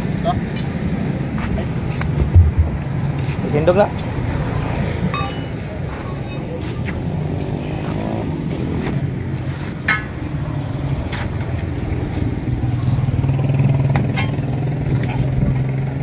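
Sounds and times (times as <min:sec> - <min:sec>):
tire lever clinking on metal rim: 0:05.1 - 0:06.5, 0:09.8 - 0:10.3, 0:14.1 - 0:14.5.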